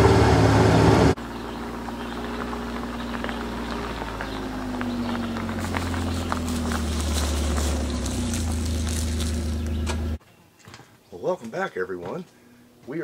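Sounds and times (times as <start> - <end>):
utility vehicle engine running: 0.0 - 10.2
tyres crunching on gravel: 1.2 - 10.2.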